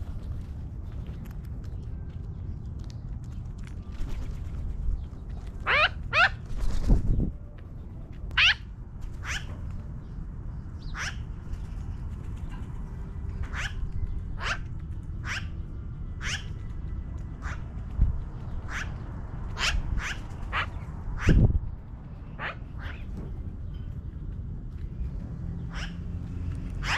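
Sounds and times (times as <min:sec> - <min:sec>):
magpie calling: 0:05.6 - 0:06.4, 0:08.4 - 0:08.6, 0:10.8 - 0:11.2, 0:15.2 - 0:15.5, 0:16.2 - 0:16.5, 0:18.6 - 0:19.0, 0:19.6 - 0:21.4, 0:25.7 - 0:26.0.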